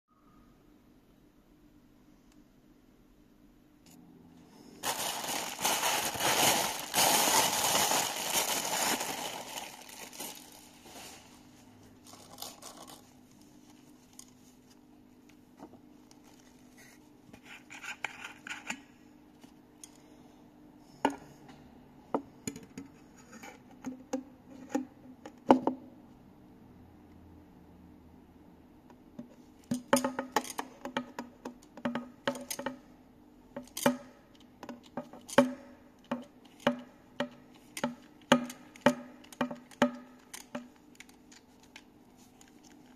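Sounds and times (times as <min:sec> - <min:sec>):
packaging crinkling and rustling: 0:04.8 - 0:14.8, 0:39.3 - 0:42.9.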